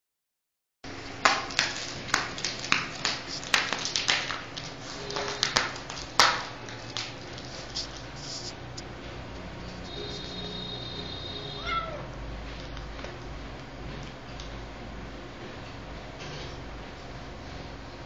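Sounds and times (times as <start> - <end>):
steady low hum: 0.9 - 18.0
kitten claws tapping plastic mat: 1.2 - 8.0.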